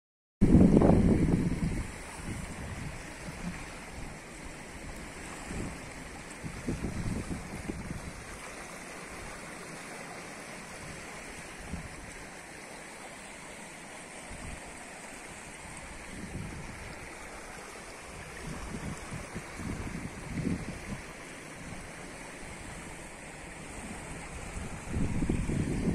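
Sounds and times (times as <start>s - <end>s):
wind rumble on microphone: 0.4s - 8.5s, 10.8s - 12.2s, 15.7s - 25.9s
stream flowing over gravel: 0.8s - 25.9s.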